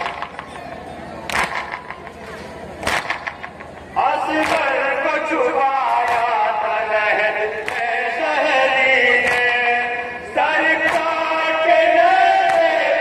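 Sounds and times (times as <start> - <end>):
group chest-beating strikes: 0.0 - 4.9, 5.9 - 6.5, 7.2 - 8.2
men chanting a lament: 4.0 - 13.0.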